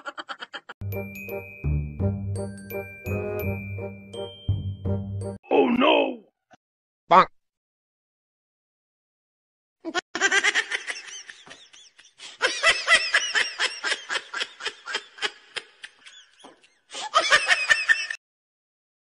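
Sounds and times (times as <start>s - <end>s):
high-pitched rhythmic laughter: 0.0s - 0.8s.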